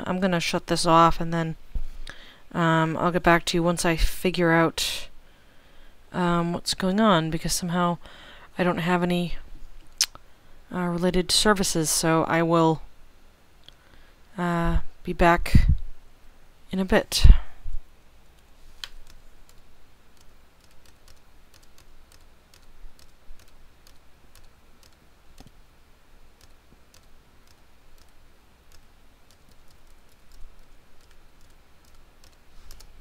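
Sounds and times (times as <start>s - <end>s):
computer keyboard clicks: 20.2s - 25.5s, 26.4s - 32.9s.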